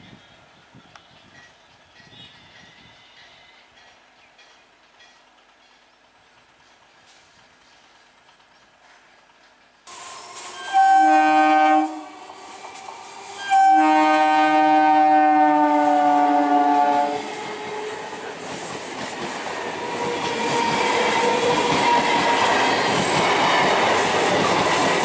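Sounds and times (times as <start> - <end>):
train wheel clatter: 1.3 - 10.8, 12.1 - 13.7, 17.2 - 25.0
train horn blasts: 9.9 - 12.2, 13.4 - 18.2.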